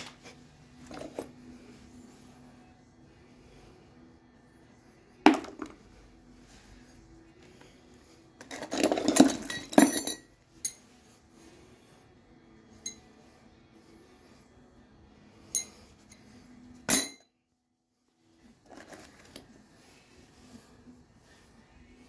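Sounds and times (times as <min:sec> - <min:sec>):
metal hardware clinking in tool bag: 0:00.8 - 0:01.4, 0:08.4 - 0:10.8.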